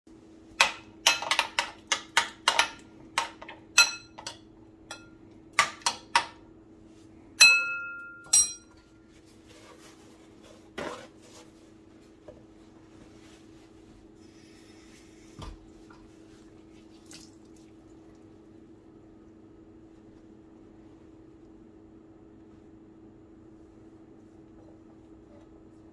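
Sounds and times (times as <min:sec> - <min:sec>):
faint steady hum: 0:00.1 - 0:25.9
ringing taps on bowl: 0:07.4 - 0:08.8
paper towel rustling: 0:09.0 - 0:17.4.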